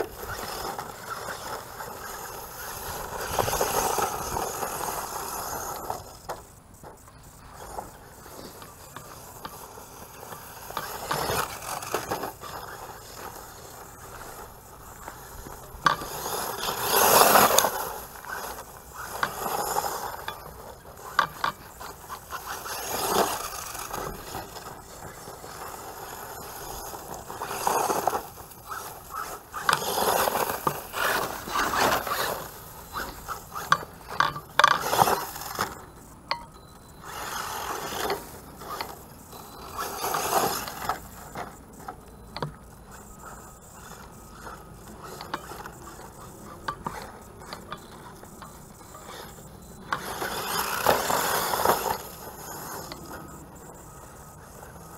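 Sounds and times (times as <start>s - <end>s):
tyres scrabbling over dirt: 0.0s - 36.4s, 37.0s - 53.2s
rc truck motor whining: 0.0s - 54.9s.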